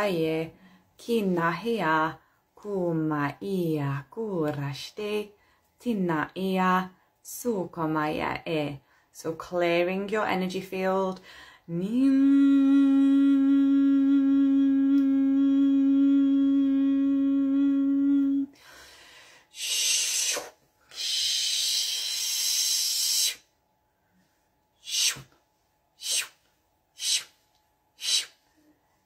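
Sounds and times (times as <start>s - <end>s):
woman humming: 11.7s - 18.6s, 19.6s - 23.4s, 28.0s - 28.3s.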